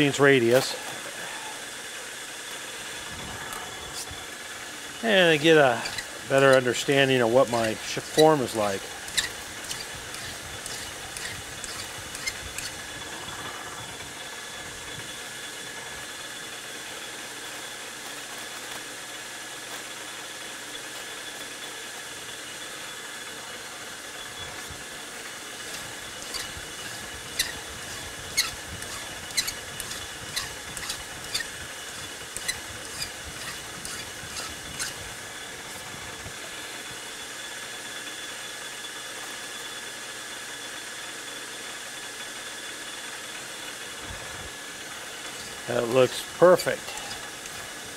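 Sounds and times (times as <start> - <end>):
metal lathe whining: 0.0 - 47.9
sharp clicks or scrapes: 9.1 - 12.8, 25.6 - 35.0.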